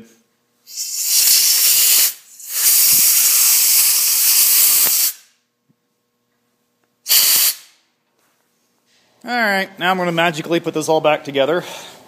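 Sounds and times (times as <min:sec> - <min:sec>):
compressed air blow gun hissing: 0:00.7 - 0:05.2, 0:07.1 - 0:07.7.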